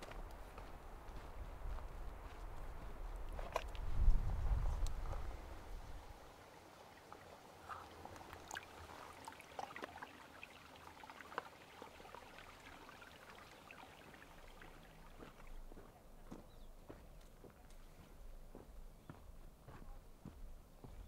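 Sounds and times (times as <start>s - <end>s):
stream trickling over rocks: 4.8s - 16.2s
water drips and plinks: 6.9s - 15.8s.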